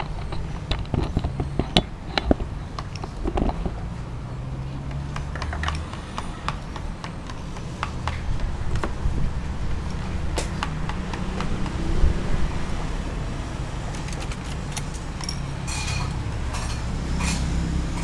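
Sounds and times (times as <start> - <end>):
spoons clinking on glass and metal: 14.9 - 17.5.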